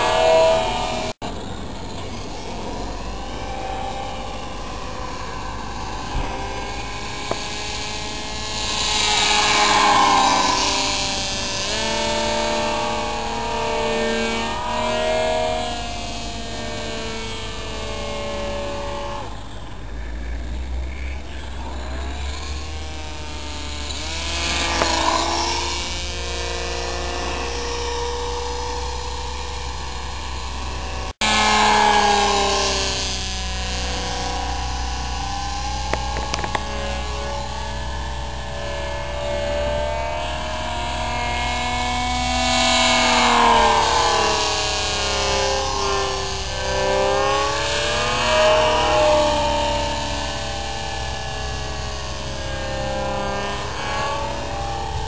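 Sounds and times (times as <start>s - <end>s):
distant electric motor whine: 0.0s - 55.0s.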